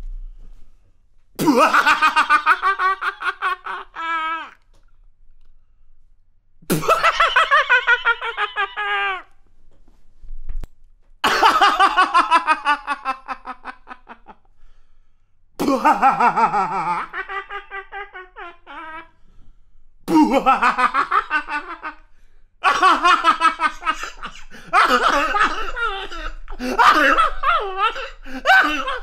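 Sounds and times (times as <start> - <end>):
man laughing: 1.4 - 4.6, 6.7 - 9.3, 11.2 - 14.4, 15.6 - 19.1, 20.1 - 22.0, 22.6 - 29.0.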